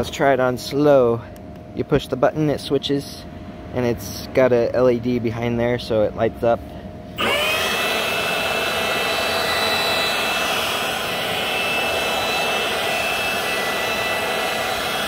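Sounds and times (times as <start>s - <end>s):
electric blower running: 7.2s - 15.0s.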